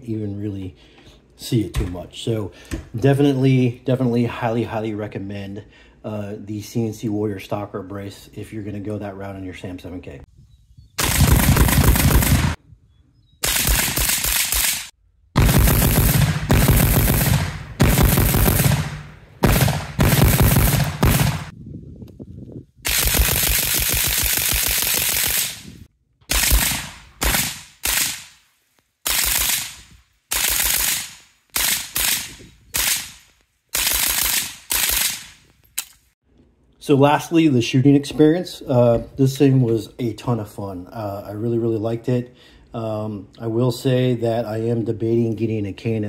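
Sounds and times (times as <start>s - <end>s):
rifle firing rapid bursts: 11.0s - 12.6s, 13.4s - 21.5s, 22.9s - 25.7s, 26.3s - 28.3s, 29.1s - 33.2s, 33.8s - 35.3s.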